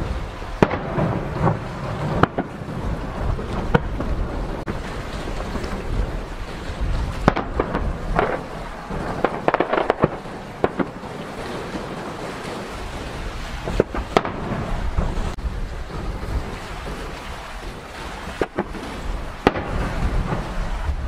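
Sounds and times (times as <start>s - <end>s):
continuous low rumble: 0.0s - 21.0s
firework shells bursting: 7.2s - 11.1s.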